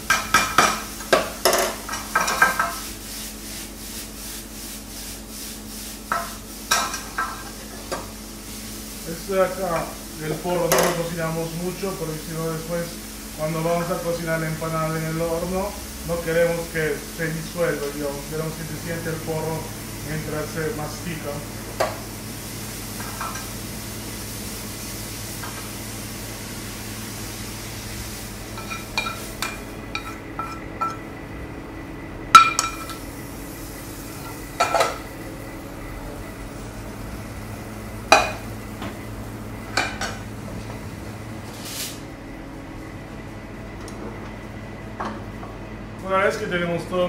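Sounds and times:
faint sizzle: 0:00.0 - 0:31.6, 0:32.3 - 0:43.3
steady low hum: 0:00.0 - 0:47.0
metal spoon clinking on pans: 0:28.6 - 0:31.0, 0:32.4 - 0:33.0.

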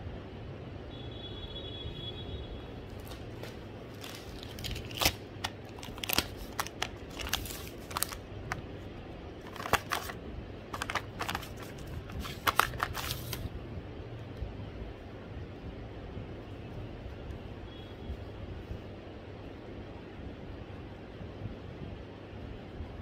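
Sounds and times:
steady low hum: 0:00.0 - 0:23.0
plastic packet crinkling: 0:03.0 - 0:08.6, 0:09.4 - 0:13.5.

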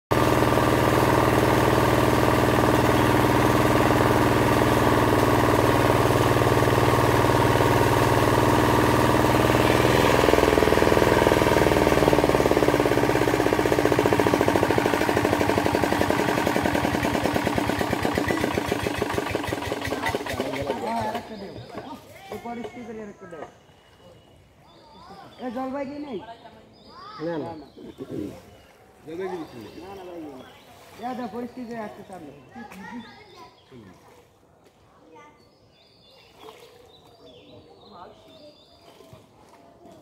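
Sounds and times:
water pump engine running: 0:00.1 - 0:23.0.

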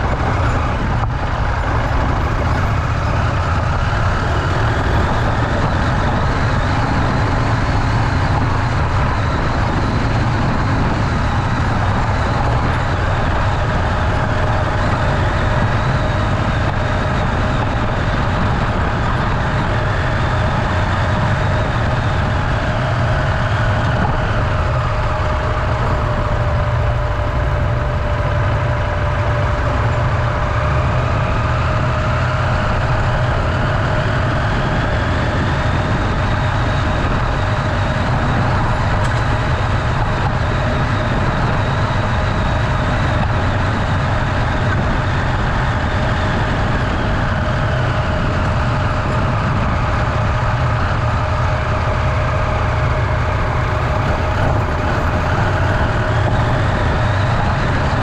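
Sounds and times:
motorcycle engine running: 0:00.0 - 0:58.0
wind and road noise: 0:00.0 - 0:58.0.

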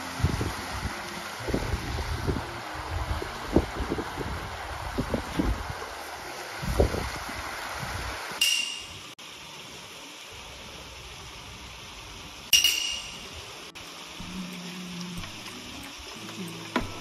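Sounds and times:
background hiss: 0:00.0 - 0:17.0
bright chime-like pings: 0:08.4 - 0:09.0.

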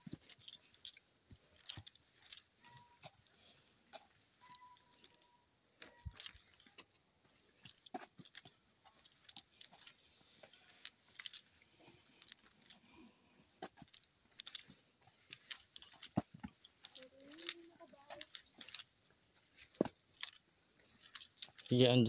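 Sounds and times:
twigs and dry leaves crunching: 0:00.0 - 0:13.0, 0:13.6 - 0:22.0
footsteps on dirt trail: 0:13.6 - 0:18.8.

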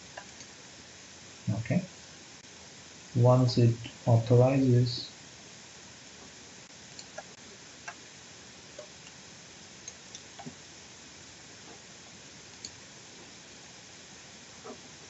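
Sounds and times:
steady low hiss: 0:00.0 - 0:15.0
computer mouse clicks: 0:07.0 - 0:08.0, 0:12.5 - 0:12.8.

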